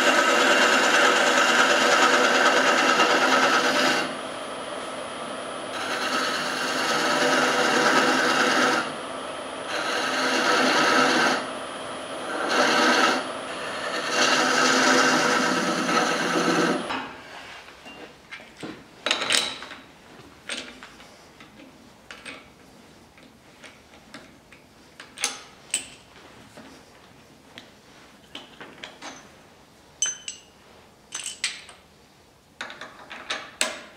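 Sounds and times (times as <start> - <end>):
lathe tool cutting wood: 0.0 - 4.2, 5.5 - 16.9.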